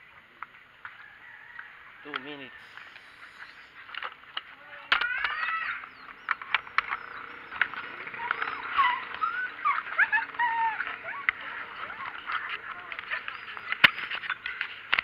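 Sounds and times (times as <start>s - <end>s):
sharp clicks and knocks: 2.1s - 15.0s
dogs yelping and whining: 4.9s - 14.8s.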